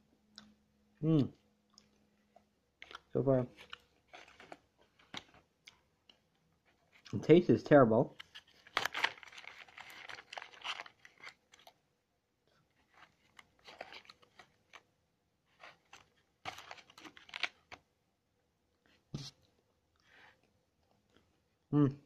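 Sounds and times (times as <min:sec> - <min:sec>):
cardboard box tearing: 0:08.6 - 0:11.3.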